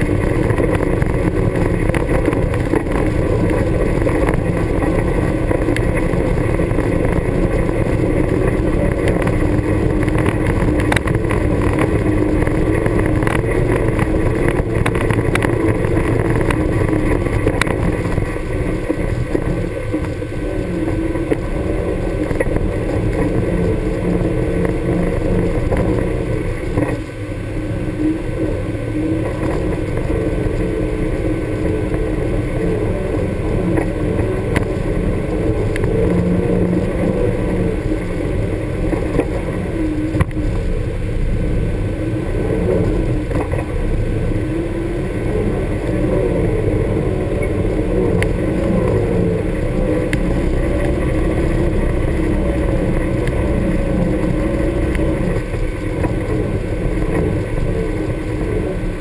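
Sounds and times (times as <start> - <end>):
stones knocking under tyres: 0.0 - 20.2
engine running steadily: 0.0 - 59.0.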